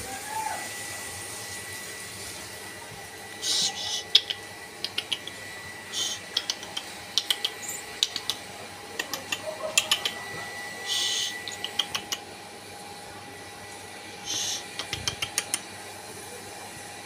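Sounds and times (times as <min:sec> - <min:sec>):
short hissy bursts: 0:14.2 - 0:14.7.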